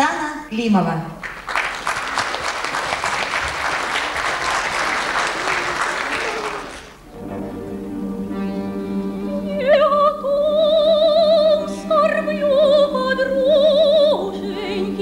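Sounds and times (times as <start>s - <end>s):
audience applauding: 1.2s - 7.1s
orchestra playing: 6.0s - 15.0s.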